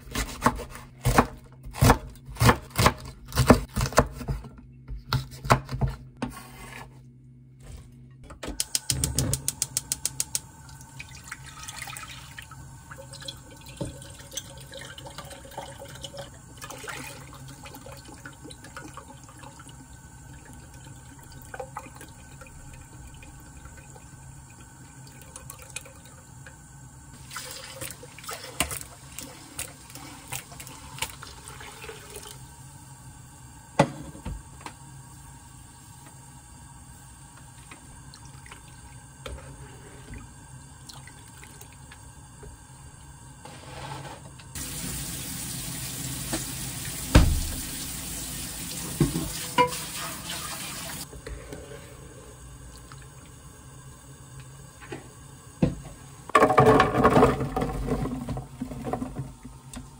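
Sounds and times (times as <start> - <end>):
water running in sink: 8.6 - 34.4, 35.2 - 43.2, 44.4 - 51.1, 52.6 - 59.9.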